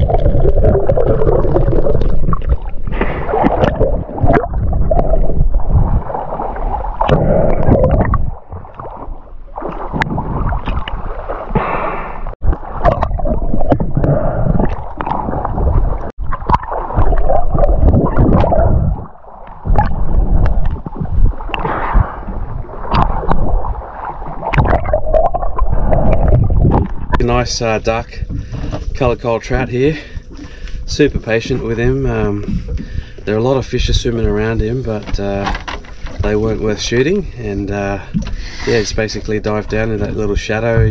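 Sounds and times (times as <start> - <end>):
water sloshing and gurgling: 0.0 - 40.9.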